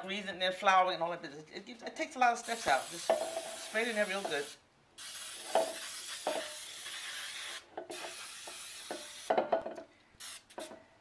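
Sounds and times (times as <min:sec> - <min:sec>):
aerosol spray hissing: 0:02.4 - 0:09.3, 0:10.2 - 0:10.6.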